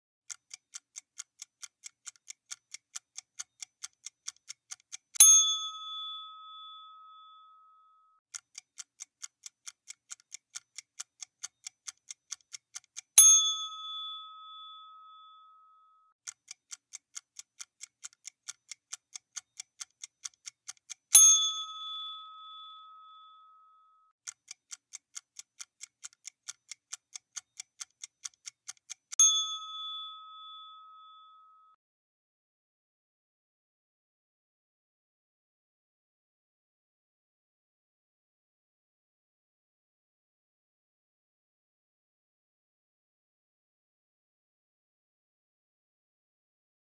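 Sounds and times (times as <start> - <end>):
clock ticking fast: 0.3 - 6.4, 8.3 - 14.6, 16.2 - 22.8, 24.2 - 30.8
bright bell ding: 5.2 - 7.8, 13.2 - 15.8, 21.2 - 23.8, 29.2 - 31.7.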